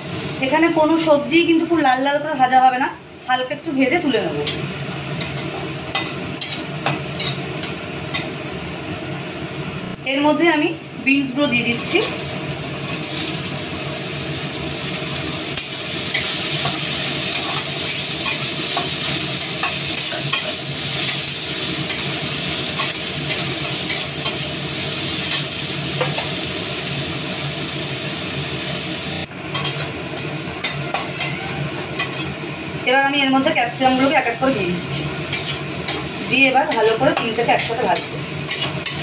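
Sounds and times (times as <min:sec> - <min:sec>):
vegetables sizzling in hot oil: 0:00.0 - 0:09.8, 0:11.0 - 0:39.0
metal spatula scraping pan: 0:29.5 - 0:32.4.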